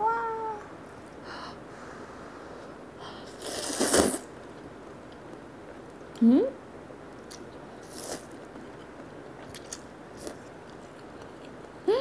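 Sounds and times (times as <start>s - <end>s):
woman slurping noodles: 3.4s - 4.2s
woman humming: 6.2s - 6.6s.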